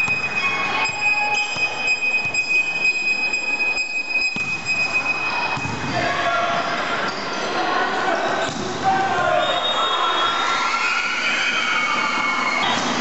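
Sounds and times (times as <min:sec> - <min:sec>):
shrill noisemaker tones: 0:00.0 - 0:05.6
crowd noise in a hall: 0:00.0 - 0:13.0.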